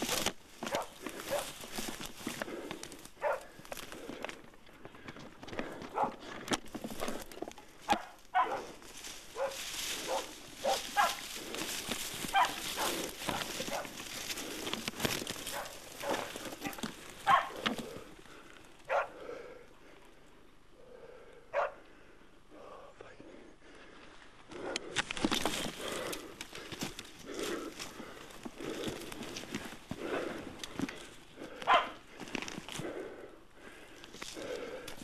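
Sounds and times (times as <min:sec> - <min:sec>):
rustling through scrub: 0:00.0 - 0:20.3, 0:23.7 - 0:35.0
dogs barking: 0:00.6 - 0:01.6, 0:03.2 - 0:03.6, 0:05.9 - 0:06.3, 0:07.9 - 0:11.5, 0:12.3 - 0:14.0, 0:15.4 - 0:17.7, 0:18.9 - 0:19.2, 0:21.5 - 0:21.8, 0:31.5 - 0:32.0.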